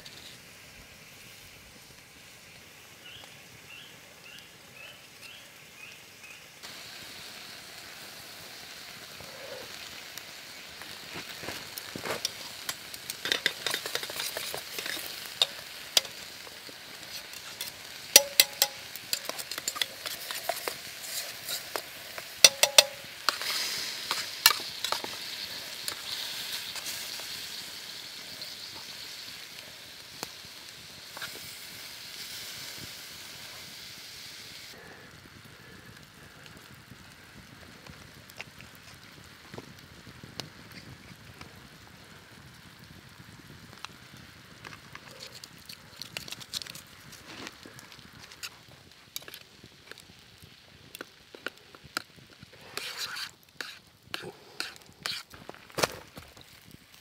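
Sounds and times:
food sizzling in a pan: 0.0 - 57.0
metal utensil scraping pan: 11.8 - 27.1, 52.6 - 55.3.

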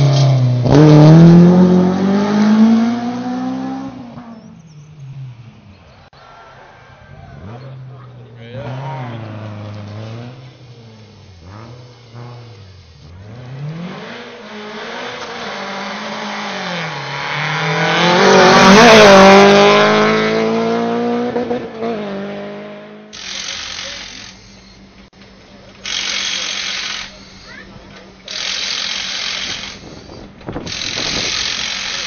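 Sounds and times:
rally car engine revving past: 0.0 - 4.4, 7.1 - 23.1.

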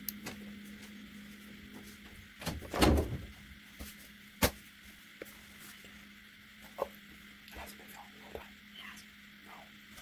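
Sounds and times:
door opening and shutting: 2.4 - 3.3.

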